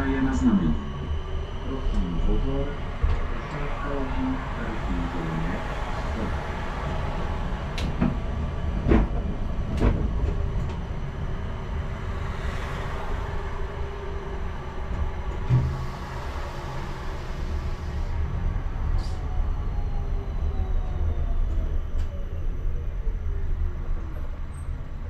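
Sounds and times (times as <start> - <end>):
tram rumbling along track: 0.0 - 25.0.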